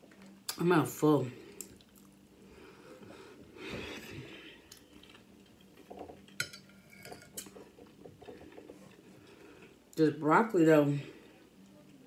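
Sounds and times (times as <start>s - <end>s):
fork scraping a plate: 6.4s - 8.6s.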